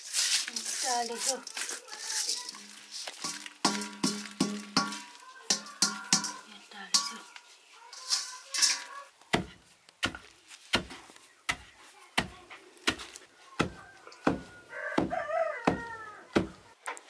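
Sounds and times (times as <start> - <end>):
rooster crowing: 13.8 - 16.3.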